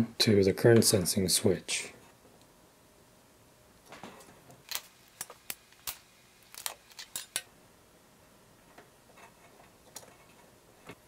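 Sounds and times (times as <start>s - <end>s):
wire strippers clicking and snipping: 4.2s - 7.5s.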